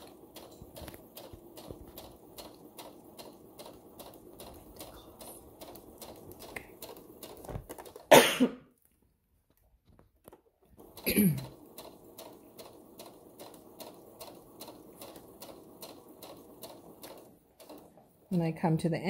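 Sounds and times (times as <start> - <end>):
sewing machine stitching: 0.0 - 8.1, 10.6 - 18.5
person coughing: 8.1 - 8.7, 11.0 - 11.5.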